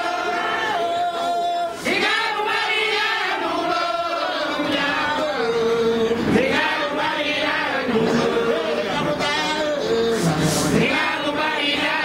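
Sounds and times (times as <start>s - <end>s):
men chanting together: 0.0s - 12.0s
maracas: 4.4s - 12.0s.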